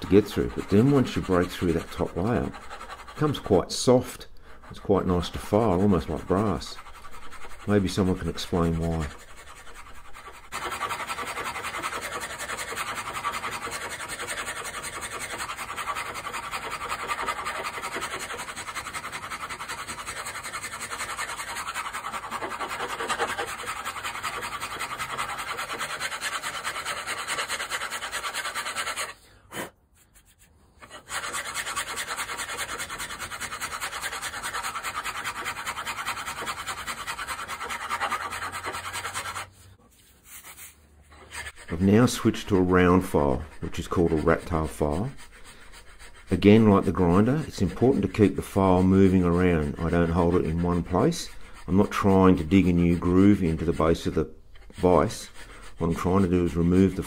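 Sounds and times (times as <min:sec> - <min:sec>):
hand file rasping on cast iron: 0:00.0 - 0:29.7, 0:30.8 - 0:39.6, 0:40.4 - 0:57.0.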